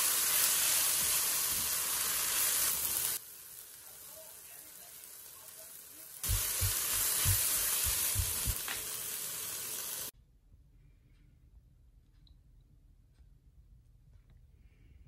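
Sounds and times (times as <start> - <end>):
vegetables sizzling in a pan: 0.0 - 10.1.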